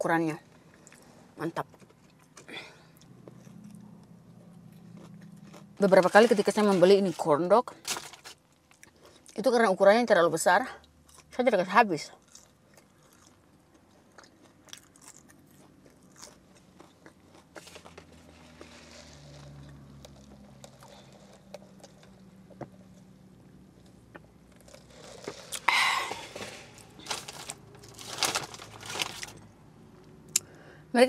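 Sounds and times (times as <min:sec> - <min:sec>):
chewing and crunching fries: 0:00.4 - 0:09.5, 0:10.7 - 0:30.6
paper bag rustling: 0:24.9 - 0:29.4.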